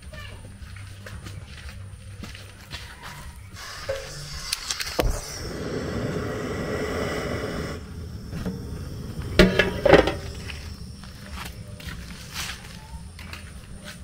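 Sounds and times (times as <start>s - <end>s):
rushing noise: 3.6s - 11.1s
metal cookware clanks: 9.4s - 10.4s.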